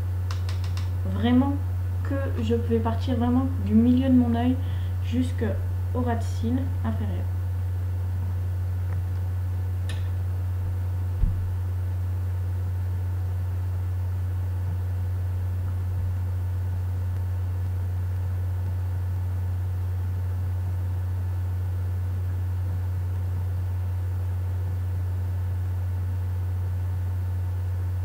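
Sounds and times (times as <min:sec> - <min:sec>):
steady low hum: 0:00.0 - 0:28.0
short thump: 0:11.2 - 0:11.6.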